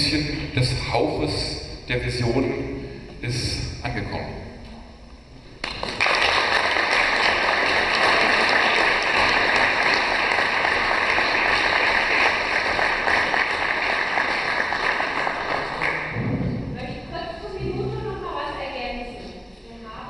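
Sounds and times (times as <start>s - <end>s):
audience applauding: 5.6s - 16.3s.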